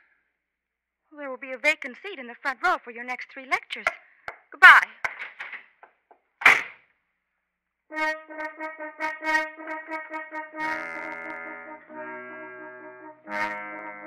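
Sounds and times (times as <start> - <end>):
held brass chord: 7.9 - 14.0
staccato trumpet notes: 7.9 - 14.0.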